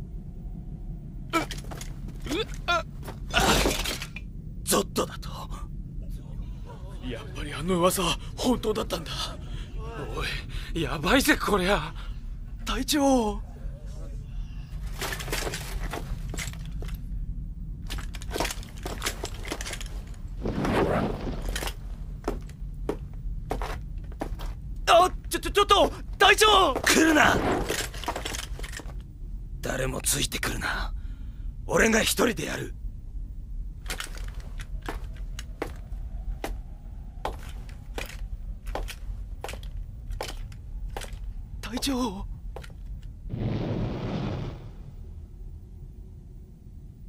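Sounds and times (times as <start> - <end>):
steady low rumble: 0.0 - 47.0
short cracks and clinks: 3.3 - 4.3, 17.9 - 20.4
running footsteps on stone: 22.2 - 24.6.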